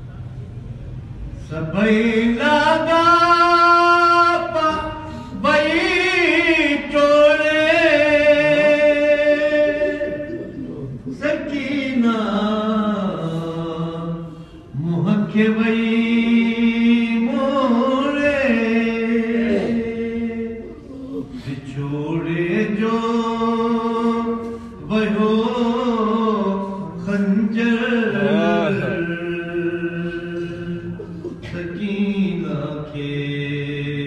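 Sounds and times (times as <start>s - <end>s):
man chanting: 1.4s - 34.0s.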